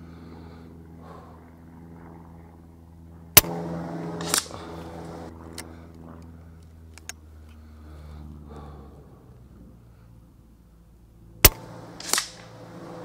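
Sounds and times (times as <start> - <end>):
air rifle shot crack: 3.4 - 5.3, 11.4 - 13.0.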